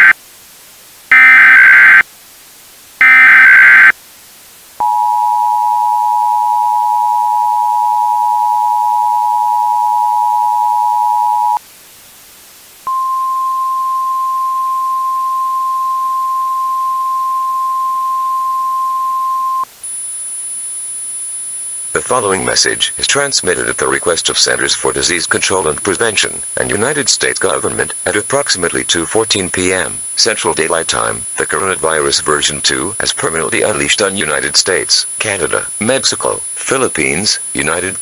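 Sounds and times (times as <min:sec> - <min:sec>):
screeching data squawks: 0:01.1 - 0:02.0, 0:03.0 - 0:03.9
two-tone attention signal: 0:03.0 - 0:03.9, 0:04.8 - 0:11.6, 0:12.9 - 0:19.7.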